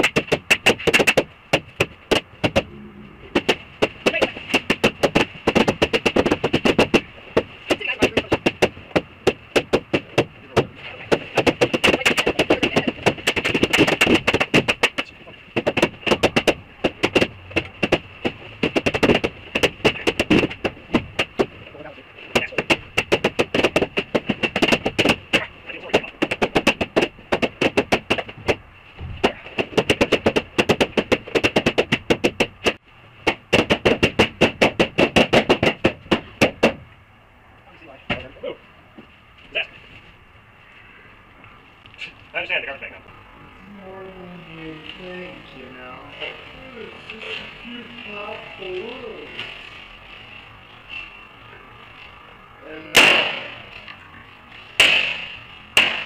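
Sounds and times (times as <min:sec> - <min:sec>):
balloons popping: 0:00.0 - 0:36.9
high-pitched hum: 0:02.5 - 0:03.8.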